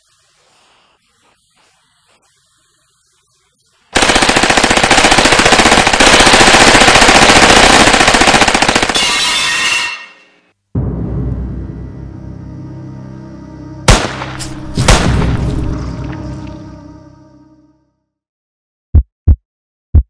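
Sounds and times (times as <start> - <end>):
rapid automatic gunfire: 3.9 - 9.0.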